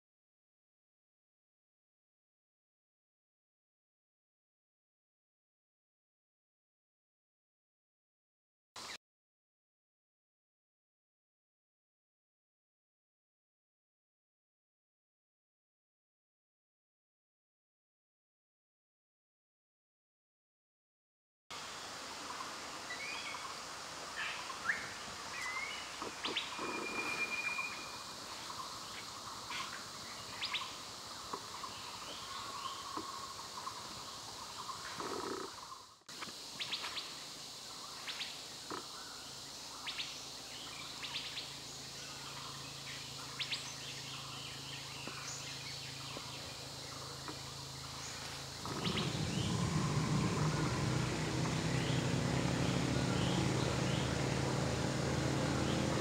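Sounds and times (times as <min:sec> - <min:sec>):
birds chirping and calling: 0:24.3 - 0:35.8, 0:39.8 - 0:54.4
short whistled note: 0:26.8 - 0:28.0.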